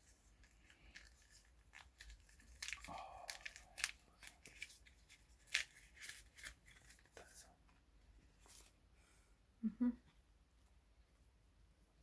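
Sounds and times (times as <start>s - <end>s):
packaging crackling: 0.4s - 7.2s.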